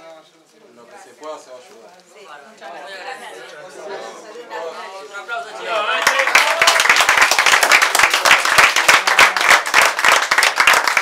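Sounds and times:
people applauding: 0:05.6 - 0:11.0.

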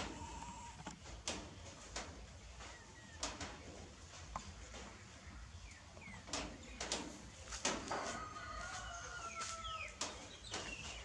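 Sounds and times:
long steady animal call: 0:00.0 - 0:00.9.

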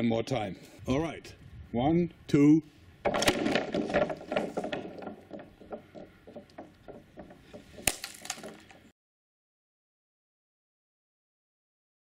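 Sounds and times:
sharp crack: 0:07.7 - 0:08.9.

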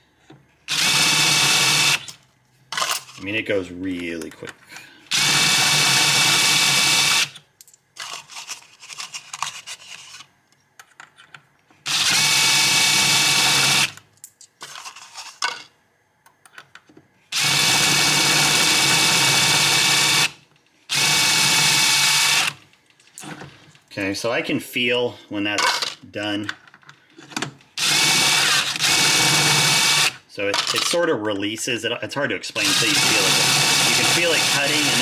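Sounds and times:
cordless drill spinning: 0:00.7 - 0:02.1, 0:05.1 - 0:07.4, 0:11.9 - 0:14.0, 0:17.3 - 0:22.6, 0:27.8 - 0:30.2, 0:32.6 - 0:35.0.

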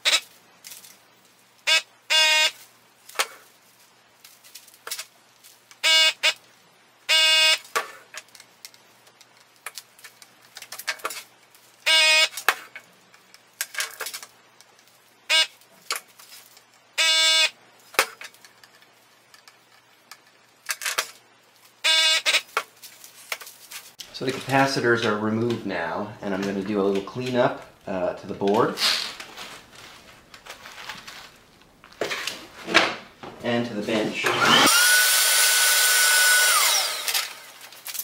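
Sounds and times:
desoldering pump buzzing: 0:34.2 - 0:37.7.

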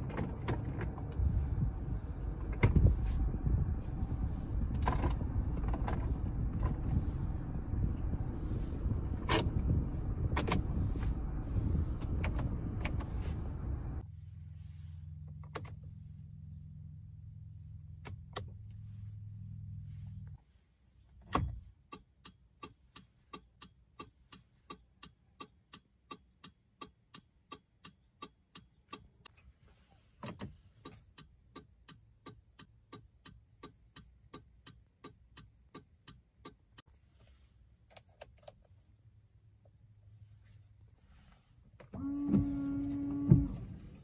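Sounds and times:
turn signal ticking: 0:00.5 - 0:14.0, 0:21.5 - 0:29.4, 0:30.8 - 0:36.9.

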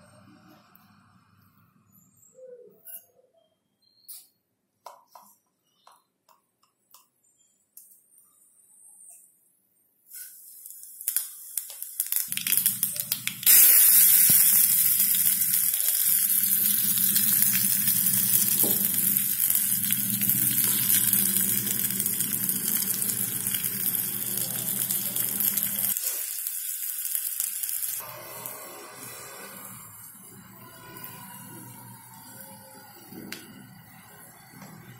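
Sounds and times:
seeds crackling in hot oil: 0:10.1 - 0:33.6
onions sizzling loudly: 0:10.1 - 0:34.7.

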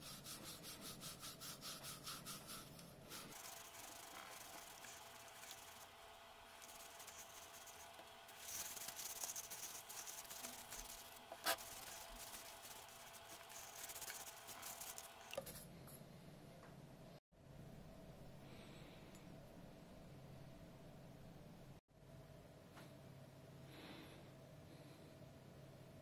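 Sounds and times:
cloth rubbing metal: 0:00.0 - 0:15.1.

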